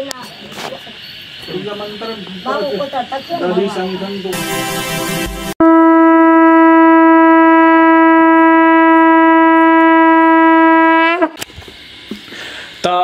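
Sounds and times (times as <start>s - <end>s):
conch shell blown: 4.4s - 11.4s.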